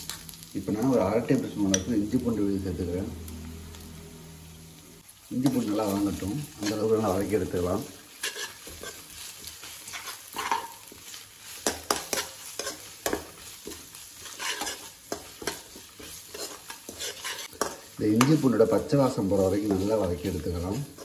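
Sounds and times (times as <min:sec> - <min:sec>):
food sizzling in oil: 0:00.0 - 0:21.0
metal ladle scraping a pan: 0:05.6 - 0:18.5.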